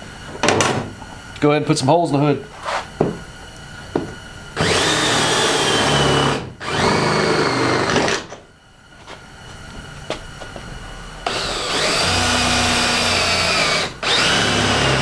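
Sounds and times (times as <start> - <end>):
power drill boring through metal: 4.6 - 8.2, 11.2 - 15.0.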